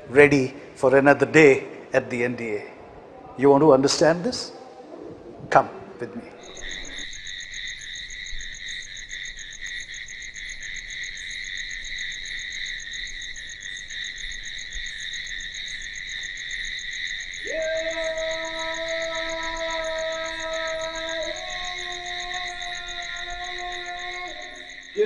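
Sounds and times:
crickets chirring: 5.6 - 25.0.

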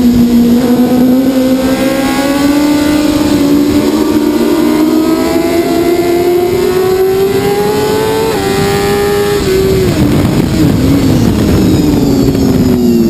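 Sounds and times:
motorcycle engine revving: 0.0 - 13.0
wind rush: 0.0 - 13.0.

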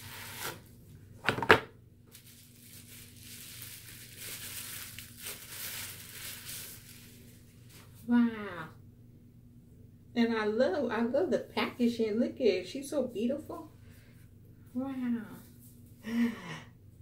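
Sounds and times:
paper rustling and crinkling: 2.1 - 8.0.

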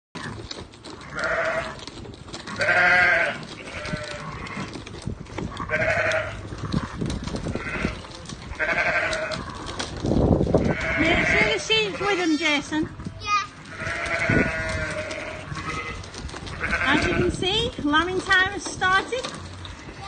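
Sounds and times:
sheep bleating: 1.0 - 1.8, 2.5 - 4.8, 5.5 - 9.8, 10.6 - 12.6, 13.5 - 17.4.

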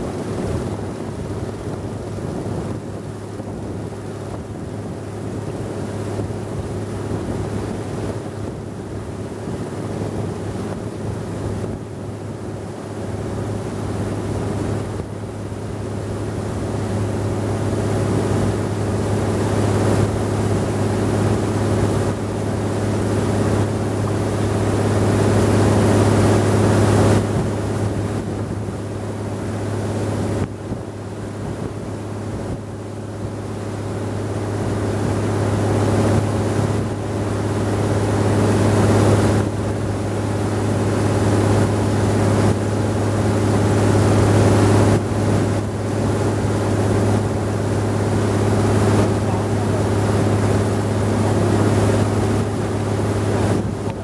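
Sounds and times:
boat engine droning: 0.0 - 54.0
rushing water: 0.0 - 54.0
wind: 0.0 - 54.0.

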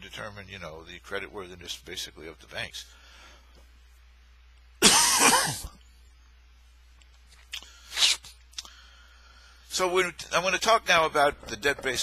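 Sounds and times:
man coughing: 4.8 - 5.8.

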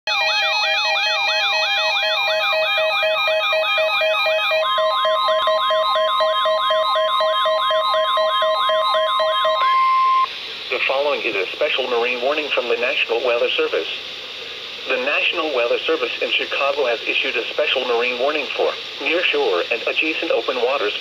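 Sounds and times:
long steady alarm tone: 0.1 - 10.3
steady pulsing beeps: 0.1 - 10.3.

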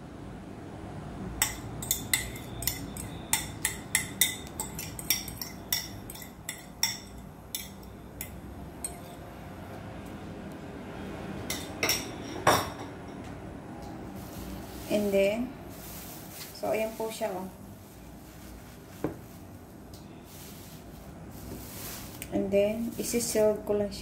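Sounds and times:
fork scraping against bowl: 1.8 - 7.9, 8.8 - 9.2.

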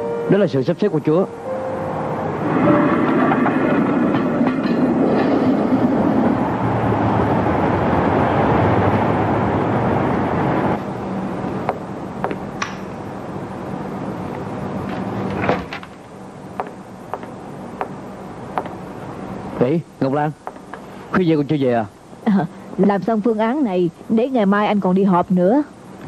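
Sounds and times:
tram wheels rumbling on track: 0.0 - 20.3.

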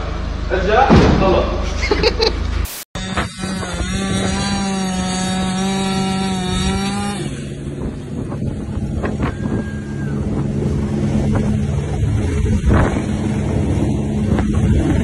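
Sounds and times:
chainsaw cutting: 2.7 - 8.6.

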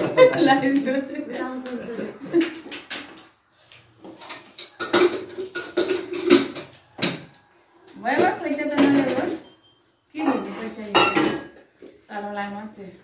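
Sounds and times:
metal plate clattering: 4.2 - 6.7.

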